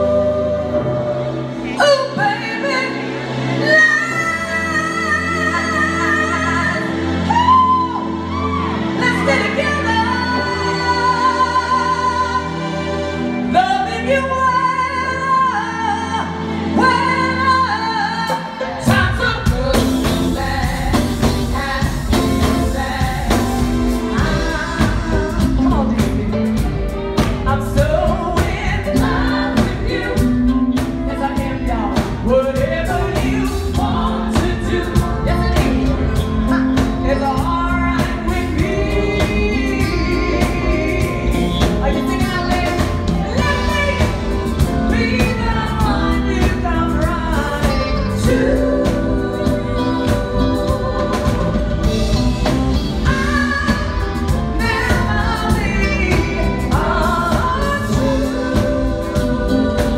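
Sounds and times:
backing vocalists: 0:00.0 - 0:59.9
drums and full band: 0:00.0 - 0:59.9
woman singing: 0:00.0 - 0:59.9
low bass notes: 0:18.9 - 0:59.9.

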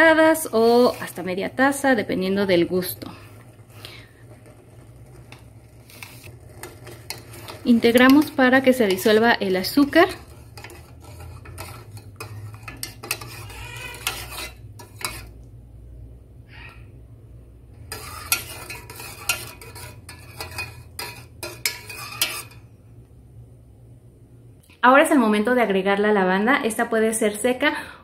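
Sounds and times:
metal spoon stirring in a pot: 0:00.0 - 0:15.6, 0:17.8 - 0:22.8.

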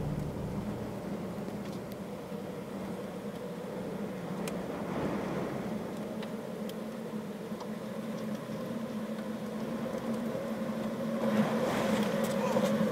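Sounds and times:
engine humming: 0:00.0 - 0:03.0
faint ticks: 0:05.9 - 0:07.0.

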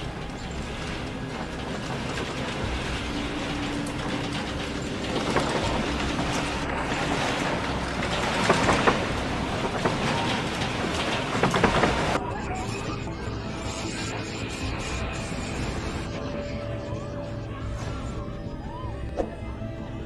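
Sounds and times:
clicks and knocks: 0:00.0 - 0:12.2
earthquake rumble with rattling: 0:00.0 - 0:16.3.

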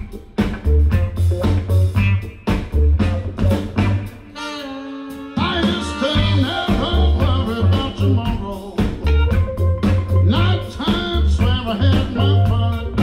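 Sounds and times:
blues soul band playing: 0:00.0 - 0:13.0
drums and bass: 0:00.0 - 0:13.0
horn section: 0:04.0 - 0:08.7.

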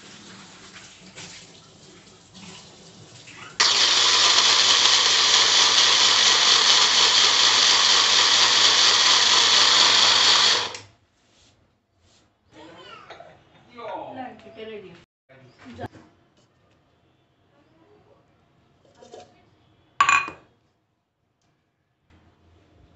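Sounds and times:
mixer grinder blending liquid: 0:03.6 - 0:10.9.

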